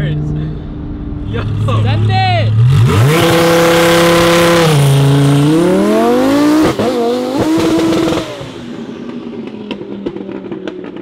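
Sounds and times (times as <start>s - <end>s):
sports car accelerating away: 2.5s - 10.6s.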